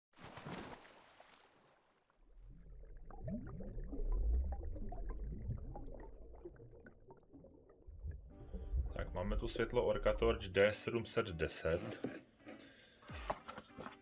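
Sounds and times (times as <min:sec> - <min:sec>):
bubbles gurgling: 0:02.2 - 0:10.2
deep underwater rumble: 0:02.2 - 0:10.2.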